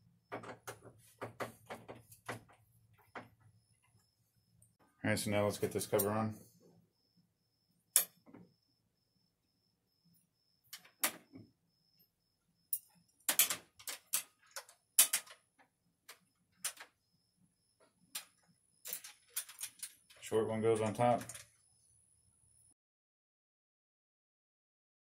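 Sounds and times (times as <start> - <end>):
metal clicks and clinks: 18.1 - 20.2.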